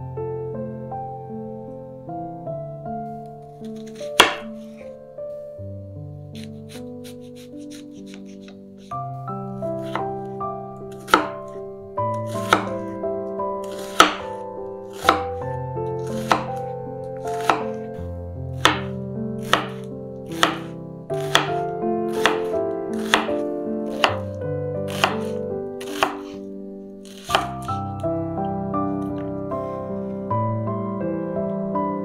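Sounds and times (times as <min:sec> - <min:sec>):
knife chopping on wooden board: 0:03.7 - 0:04.7, 0:06.4 - 0:08.6, 0:09.8 - 0:10.1, 0:10.9 - 0:11.4, 0:12.3 - 0:12.9, 0:13.6 - 0:15.4, 0:16.0 - 0:16.6, 0:17.3 - 0:17.8, 0:18.6 - 0:24.3, 0:24.9 - 0:26.4, 0:27.1 - 0:27.8.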